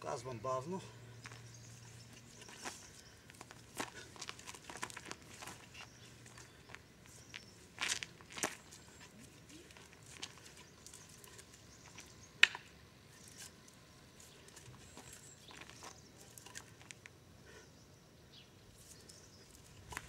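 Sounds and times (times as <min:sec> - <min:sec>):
feet shuffling on gravel: 0:00.6 - 0:12.2, 0:13.2 - 0:17.0.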